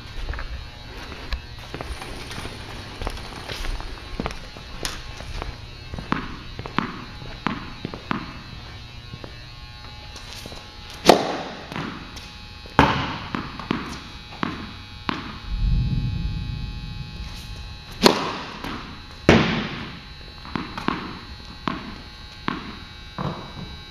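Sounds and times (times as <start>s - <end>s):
tennis balls bouncing: 6.1s - 8.4s, 20.4s - 23.5s
tennis ball struck loudly: 11.1s - 11.9s, 18.0s - 19.9s
low rumble: 15.5s - 19.1s.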